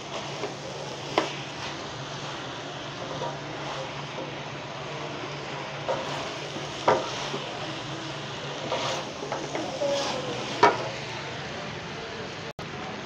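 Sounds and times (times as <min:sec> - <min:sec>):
hot pan hissing: 0:00.0 - 0:13.0
spatula scraping a metal pot: 0:08.6 - 0:11.0.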